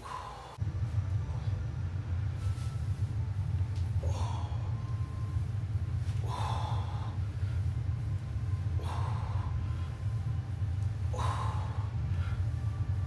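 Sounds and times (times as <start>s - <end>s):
man breathing hard: 0.0s - 1.6s, 3.9s - 5.4s, 6.0s - 8.0s, 8.6s - 10.3s, 11.0s - 13.0s
steady low hum: 0.0s - 13.0s.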